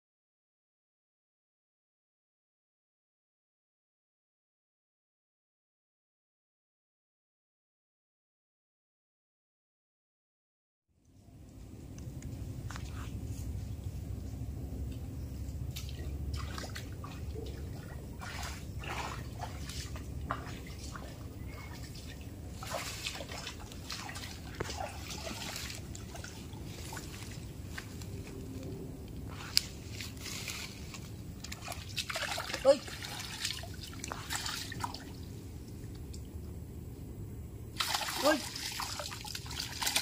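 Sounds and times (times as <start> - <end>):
water sloshing and splashing: 12.6 - 36.6, 37.8 - 40.0.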